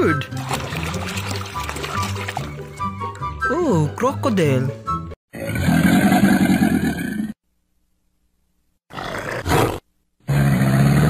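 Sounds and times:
deep animal roar: 0:05.3 - 0:07.4, 0:08.9 - 0:11.0
rough animal growl: 0:05.3 - 0:07.4, 0:08.9 - 0:11.0.

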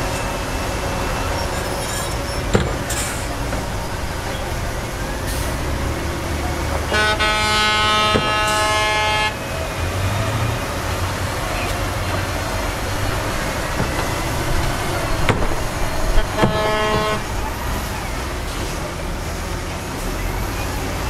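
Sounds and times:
diesel machinery running: 0:00.0 - 0:21.0
truck horn blast: 0:05.2 - 0:10.1, 0:12.9 - 0:17.6.

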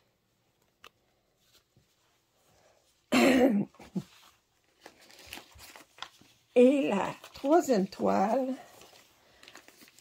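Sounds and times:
woman coughing: 0:03.1 - 0:04.0.

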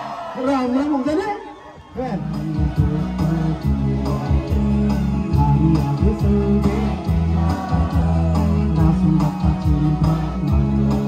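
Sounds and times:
guitar: 0:02.2 - 0:11.0
man singing into microphone: 0:02.2 - 0:11.0
steady beat: 0:02.2 - 0:11.0.

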